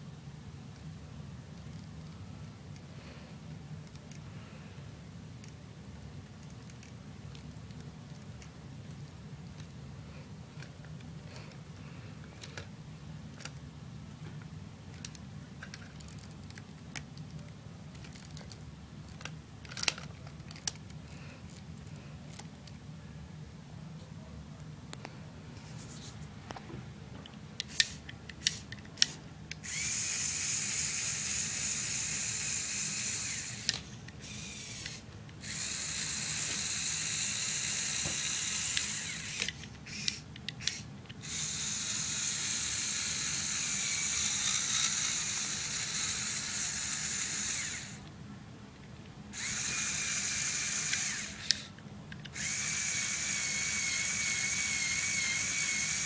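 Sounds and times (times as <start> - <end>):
sharp plastic clicks: 27.6 - 29.8, 38.0 - 41.4
electric motors and gears whining: 27.6 - 48.1, 49.3 - 56.0.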